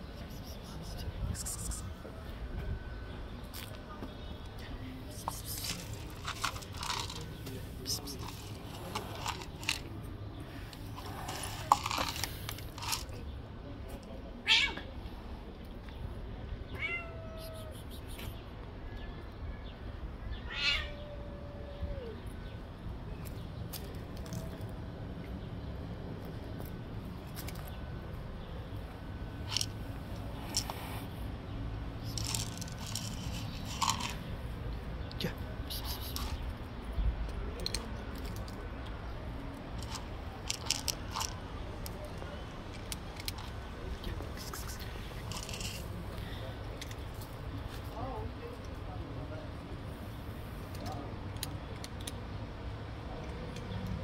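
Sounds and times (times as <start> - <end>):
cat crunching dry kibble: 5.1 - 10.0, 10.8 - 13.2, 32.0 - 34.4, 37.3 - 47.8, 50.6 - 52.3
cat crying harshly: 20.5 - 22.0.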